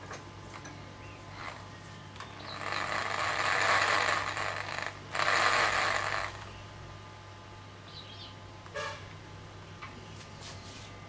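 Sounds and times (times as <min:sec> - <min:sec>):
drill sanding wood: 0:02.6 - 0:06.4.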